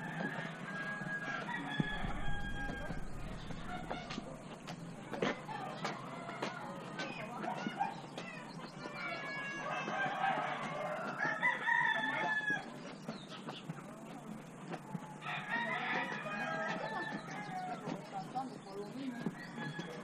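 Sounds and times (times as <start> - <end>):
rooster crowing: 0.0 - 4.5, 9.0 - 12.7, 15.2 - 17.9, 19.3 - 20.0
chickens clucking: 1.4 - 15.4.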